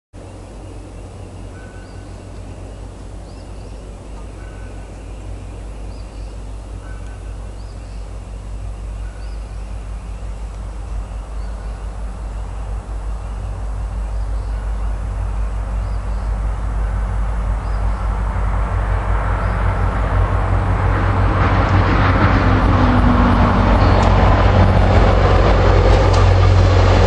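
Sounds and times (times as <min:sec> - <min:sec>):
low rumble: 0:00.2 - 0:27.0.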